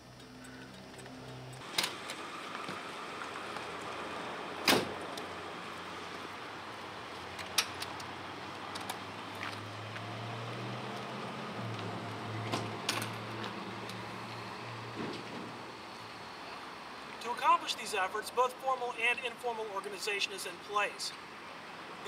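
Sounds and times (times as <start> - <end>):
van door shutting thud: 4.6 - 5.0.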